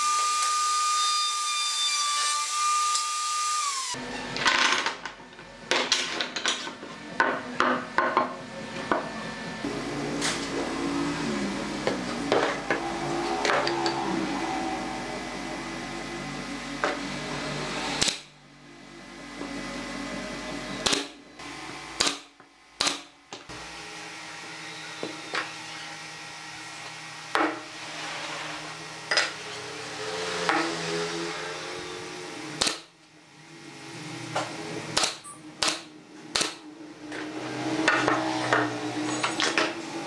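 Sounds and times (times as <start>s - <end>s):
nail gun firing: 18.0s - 18.3s, 20.8s - 21.2s, 22.0s - 23.1s, 32.6s - 32.9s, 35.0s - 36.6s.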